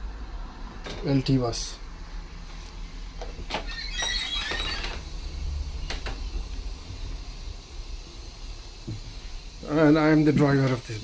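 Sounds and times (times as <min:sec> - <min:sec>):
brief high squeak: 0:03.7 - 0:05.0.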